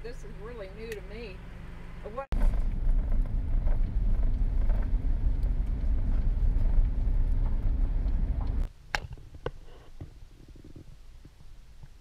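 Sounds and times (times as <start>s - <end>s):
car interior road rumble: 0.0s - 8.7s.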